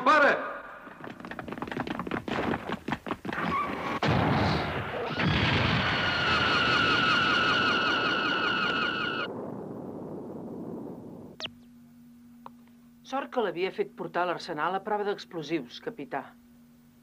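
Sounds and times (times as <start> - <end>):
loud explosion blast: 4.0 - 7.0.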